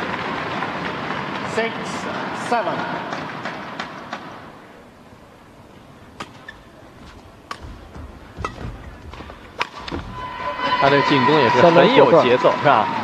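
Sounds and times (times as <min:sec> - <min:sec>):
faint hall ambience: 0:00.0 - 0:13.0
rackets hitting shuttlecock: 0:06.1 - 0:10.1.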